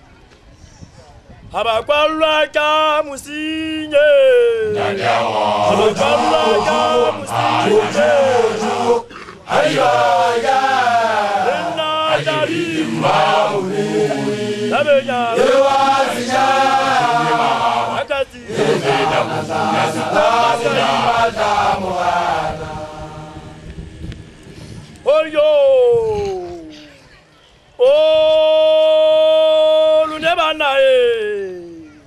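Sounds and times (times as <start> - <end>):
man leading a chant: 1.6 - 9.0, 11.2 - 21.1, 25.1 - 26.2, 27.8 - 31.6
crowd of young men chanting: 4.6 - 23.6.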